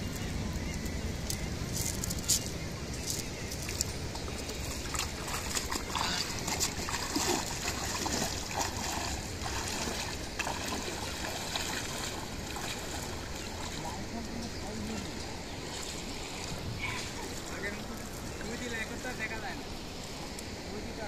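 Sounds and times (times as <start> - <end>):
people wading through water: 0.0 - 21.0.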